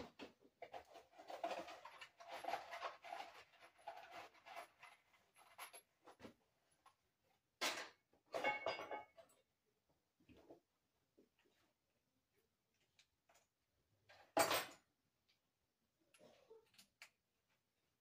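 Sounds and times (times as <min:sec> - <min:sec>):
tools rustling and scraping: 0:00.0 - 0:07.0.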